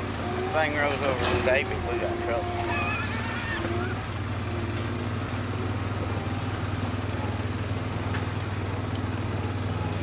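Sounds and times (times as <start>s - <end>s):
atv engine running: 0.0s - 10.0s.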